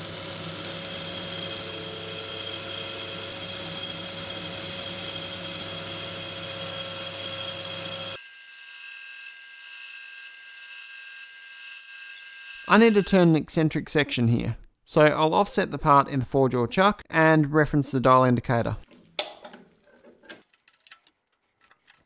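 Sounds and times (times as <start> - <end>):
metal lathe humming and whining: 0.0 - 9.8, 11.6 - 13.1.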